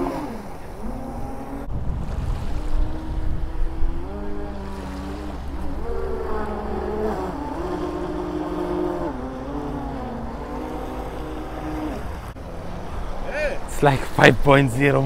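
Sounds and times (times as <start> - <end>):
wind rumble on microphone: 0.0 - 14.4
electric motors droning: 2.7 - 13.2.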